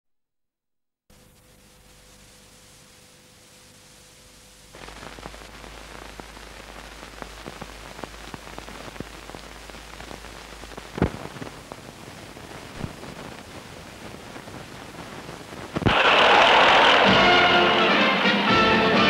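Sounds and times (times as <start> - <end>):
old film soundtrack hiss and crackle: 1.1 - 19.0
loud pop: 12.7 - 13.2, 15.8 - 17.8.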